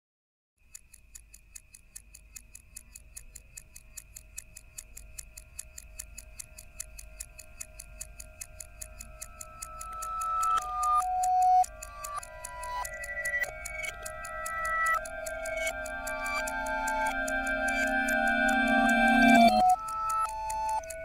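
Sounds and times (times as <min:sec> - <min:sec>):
mechanical ticking: 0:00.6 - 0:21.0
held drone tones: 0:09.5 - 0:21.0.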